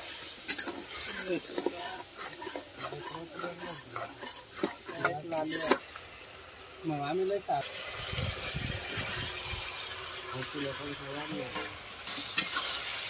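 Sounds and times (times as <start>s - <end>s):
metal spatula scraping wok: 0.0s - 6.0s, 10.6s - 13.0s
sauce sizzling in oil: 0.0s - 13.0s.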